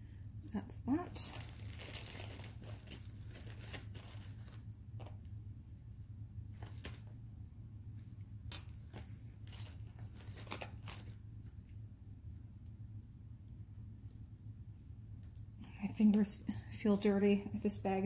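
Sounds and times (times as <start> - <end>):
steady low hum: 0.0 - 18.0
plastic baggies crinkling: 0.6 - 5.2, 8.4 - 11.2.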